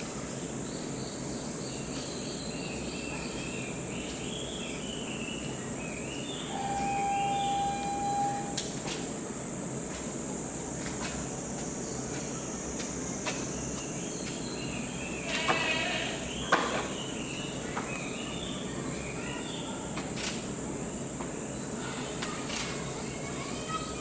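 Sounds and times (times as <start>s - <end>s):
faint chirps: 0.3s - 8.7s
high-pitched insect drone: 6.3s - 9.6s.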